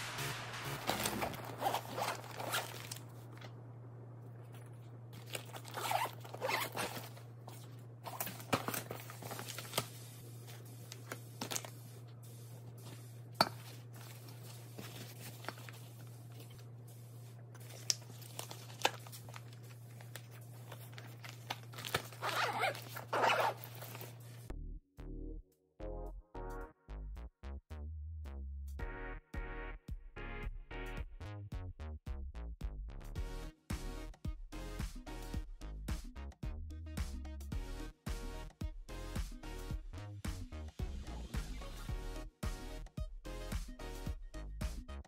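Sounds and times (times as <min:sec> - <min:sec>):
steady low hum: 0:00.0 - 0:22.3
zippers opening and closing: 0:00.8 - 0:03.0, 0:05.2 - 0:07.2, 0:21.8 - 0:24.2
fabric rustling: 0:05.2 - 0:10.0.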